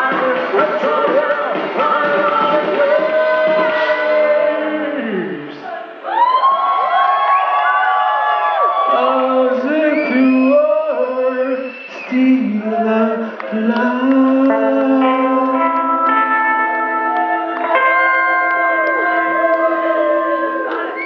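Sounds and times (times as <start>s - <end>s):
live band playing: 0.0s - 5.0s, 13.2s - 21.0s
man singing: 0.0s - 5.9s, 8.8s - 17.1s.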